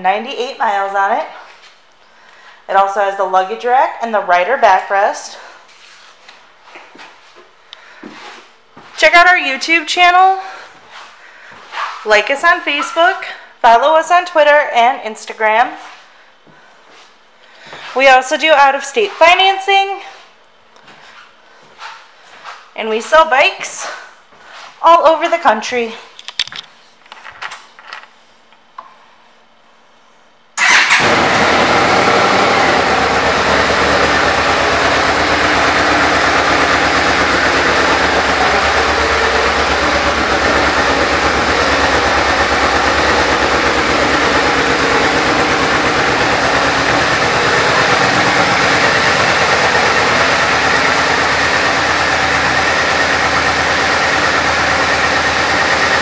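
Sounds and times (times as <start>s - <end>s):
motorcycle engine starting and idling: 30.6s - 56.0s.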